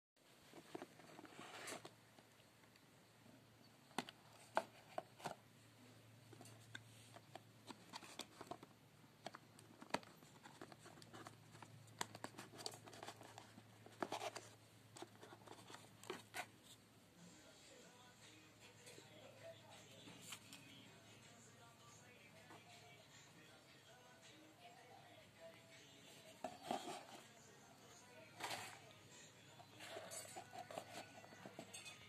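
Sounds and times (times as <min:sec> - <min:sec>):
box handling clicks and rustles: 0:06.3 - 0:16.5, 0:26.4 - 0:27.3, 0:28.3 - 0:28.9, 0:29.7 - 0:31.8.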